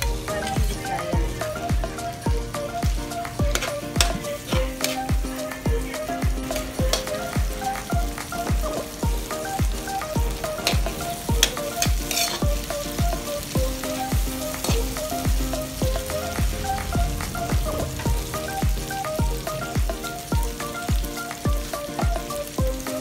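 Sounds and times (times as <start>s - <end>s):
background music with steady beat: 0.0s - 23.0s
food sizzling in a wok: 0.0s - 23.0s
metal spatula scraping pan: 3.5s - 5.1s, 11.4s - 12.5s.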